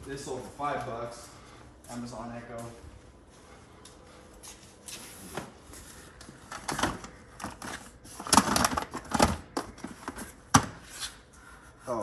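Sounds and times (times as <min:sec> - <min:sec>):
items clattering in a box: 0:06.5 - 0:10.7.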